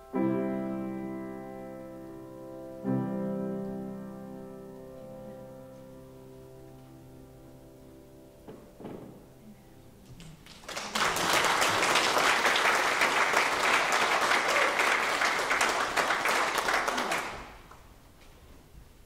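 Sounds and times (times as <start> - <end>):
grand piano chord: 0.0 - 10.0
congregation applauding: 10.0 - 18.0.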